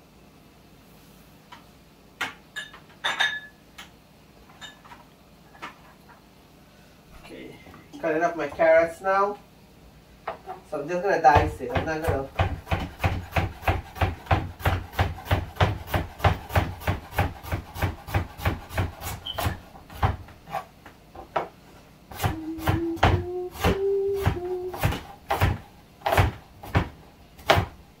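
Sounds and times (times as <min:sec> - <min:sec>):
knife chopping on wooden board: 0:11.3 - 0:20.3, 0:22.1 - 0:27.8
person humming: 0:22.1 - 0:25.1.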